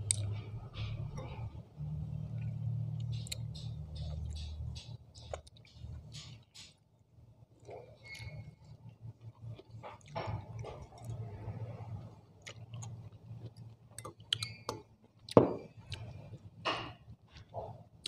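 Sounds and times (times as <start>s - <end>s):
low steady hum: 0.0s - 6.1s, 7.0s - 18.0s
chewing: 7.6s - 16.4s.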